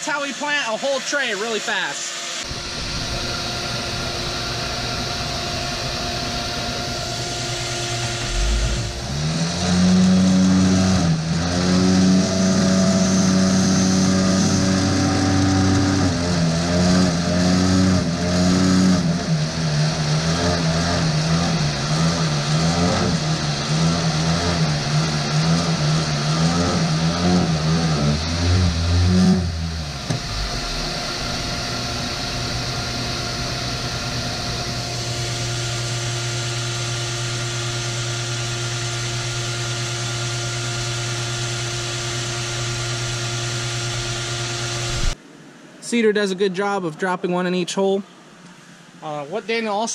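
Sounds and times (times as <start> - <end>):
vacuum motor hum: 2.2 - 45.2
vibrator buzzing: 2.2 - 45.2.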